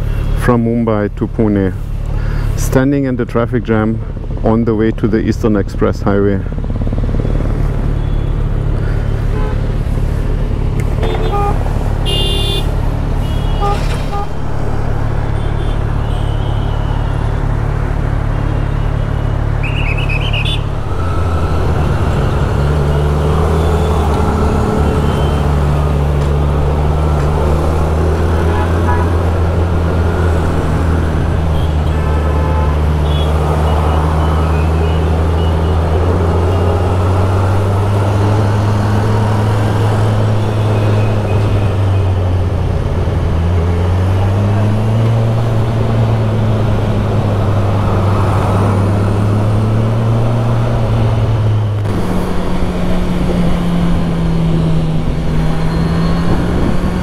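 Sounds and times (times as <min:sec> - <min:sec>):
traffic noise: 0:00.0 - 0:57.0
car horn toots: 0:11.0 - 0:17.4, 0:31.5 - 0:35.8.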